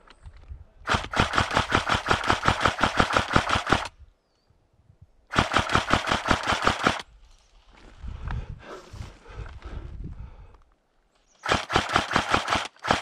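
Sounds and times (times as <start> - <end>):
airsoft gun firing full auto: 0.9 - 3.9, 5.3 - 7.0, 11.4 - 13.0.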